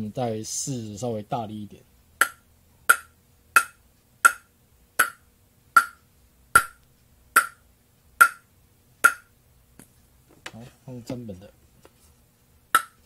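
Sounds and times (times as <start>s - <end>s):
table tennis ball bouncing on blade: 2.2s - 6.0s, 6.6s - 6.8s, 7.4s - 7.6s, 8.2s - 9.3s, 12.7s - 13.0s.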